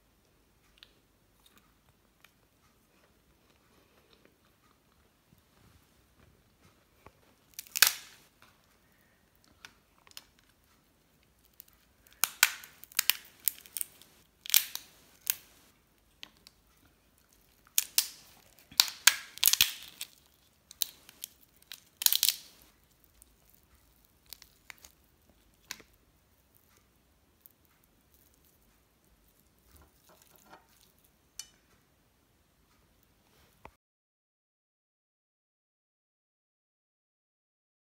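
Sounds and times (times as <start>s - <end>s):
lobster shell cracking: 7.5s - 8.2s, 11.5s - 15.6s, 17.3s - 26.0s.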